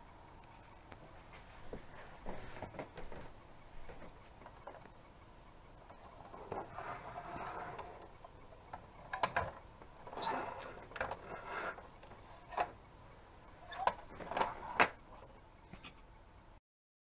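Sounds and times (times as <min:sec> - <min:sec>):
plastic toy truck clicking and rattling: 0:05.9 - 0:12.8.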